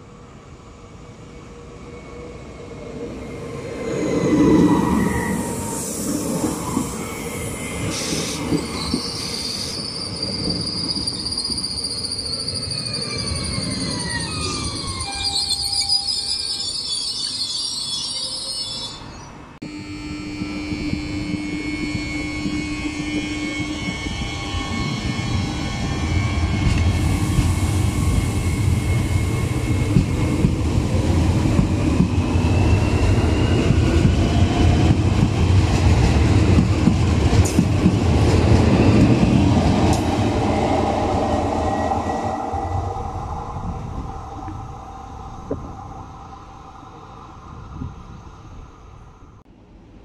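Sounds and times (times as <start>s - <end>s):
train wheels rumbling on rails: 2.1s - 17.4s, 20.0s - 49.5s
traction motor whine: 19.6s - 29.3s.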